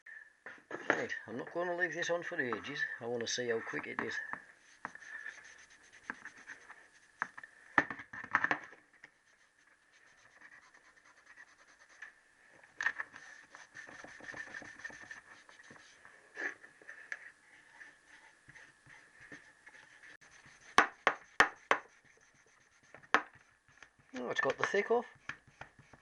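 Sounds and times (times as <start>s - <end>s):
abrasive paper scratching metal: 3.4s - 7.4s, 9.1s - 12.1s, 13.0s - 16.6s, 17.5s - 26.0s.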